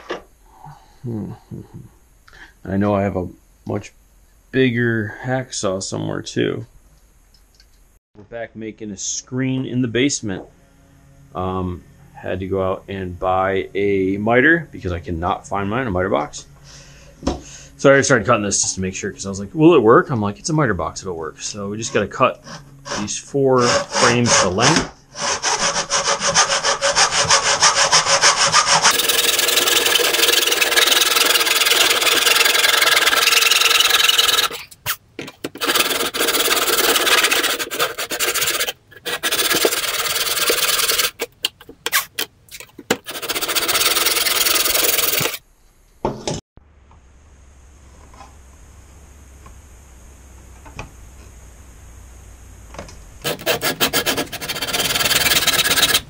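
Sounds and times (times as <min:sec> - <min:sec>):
faint low hum: 0:00.0 - 0:33.2, 0:45.4 - 0:56.0
hand saw cutting wood: 0:21.8 - 0:34.7, 0:35.4 - 0:42.3, 0:42.9 - 0:45.4, 0:53.2 - 0:56.0.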